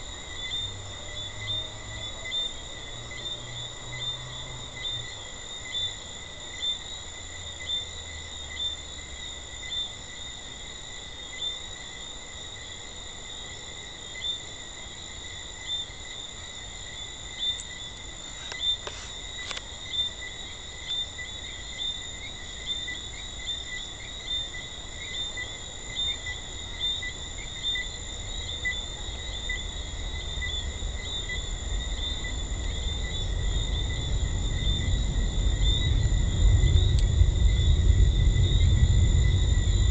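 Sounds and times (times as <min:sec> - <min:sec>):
faint clicks: 0:18.4 - 0:19.7, 0:36.9 - 0:37.1
low rumble: 0:29.8 - 0:39.9.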